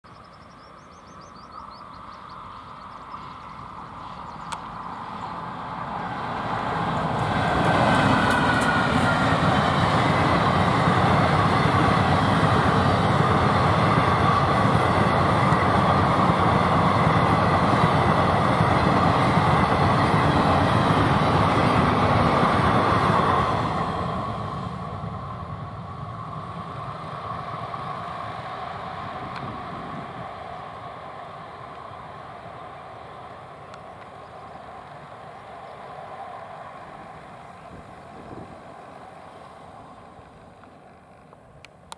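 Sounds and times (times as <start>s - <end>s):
train coaches rattling over rails: 2.9s - 25.1s.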